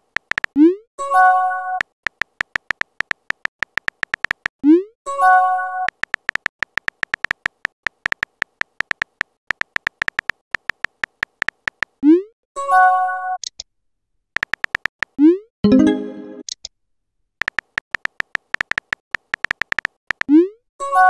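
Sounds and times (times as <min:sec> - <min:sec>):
keyboard key clicks: 0:00.0 - 0:00.6, 0:01.8 - 0:04.5, 0:05.9 - 0:12.0, 0:14.4 - 0:15.2, 0:17.4 - 0:20.3.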